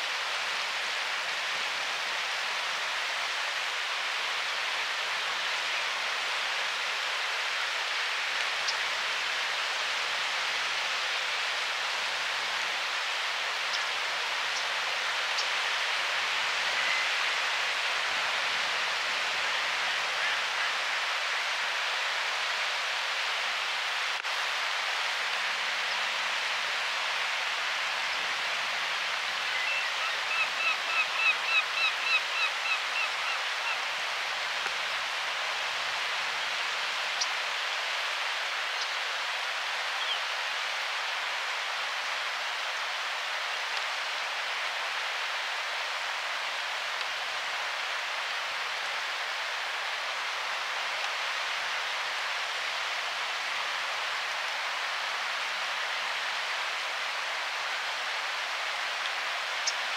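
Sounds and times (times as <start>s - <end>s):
flowing water rushing: 0.0s - 59.9s.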